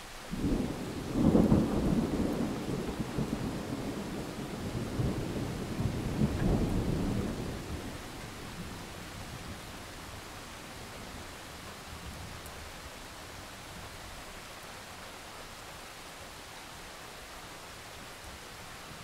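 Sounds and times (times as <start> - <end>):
rain falling on foliage: 0.0 - 19.0
thunder rumbling: 0.3 - 11.2.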